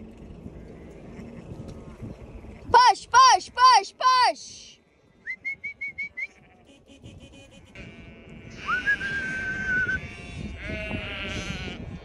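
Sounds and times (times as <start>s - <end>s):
sheep calling: 7.6s - 12.0s.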